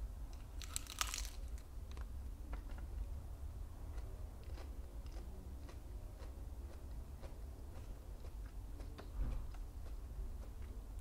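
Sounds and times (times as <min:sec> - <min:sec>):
low steady hum: 0:00.0 - 0:11.0
crisp chewing of petals: 0:00.5 - 0:02.1.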